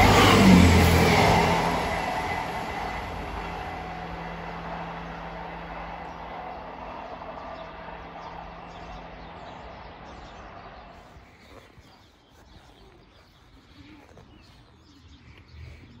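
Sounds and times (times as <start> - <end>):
train engine hum and rumble: 0.0 - 11.3
birds chirping: 0.8 - 16.0.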